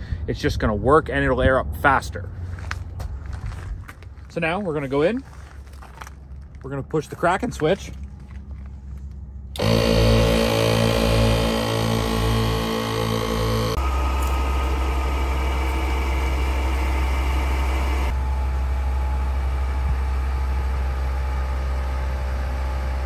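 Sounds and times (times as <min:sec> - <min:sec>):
engine idling drone: 0:08.2 - 0:23.0
air compressor running: 0:09.5 - 0:23.0.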